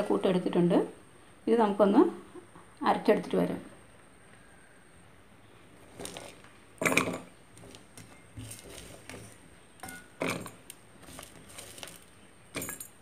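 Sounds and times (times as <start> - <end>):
cooking utensils rustling and scraping: 5.8 - 13.0.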